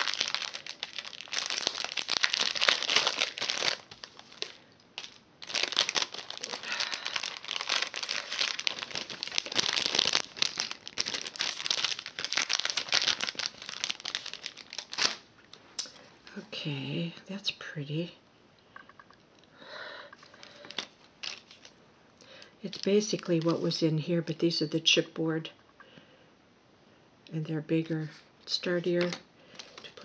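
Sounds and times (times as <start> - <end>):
cellophane packaging crinkling: 0.0 - 16.0, 20.4 - 21.8, 22.6 - 23.8, 29.0 - 30.0.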